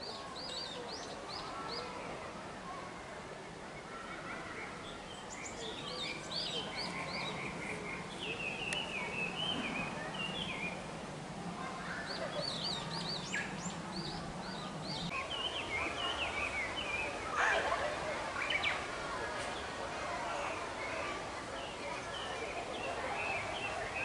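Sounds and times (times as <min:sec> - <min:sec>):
birds chirping: 0:03.8 - 0:11.0, 0:11.7 - 0:18.9, 0:20.4 - 0:24.0.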